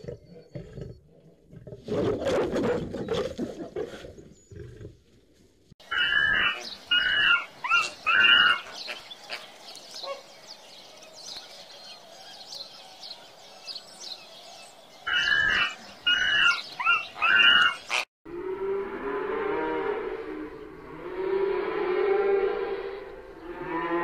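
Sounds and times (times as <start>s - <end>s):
monkey harsh calls: 5.8s - 9.4s, 15.1s - 18.0s
birds chirping: 5.8s - 18.1s.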